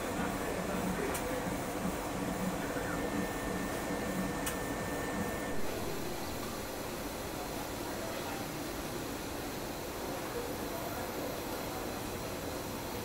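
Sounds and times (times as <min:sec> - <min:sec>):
soldering machine humming: 0:00.0 - 0:07.9.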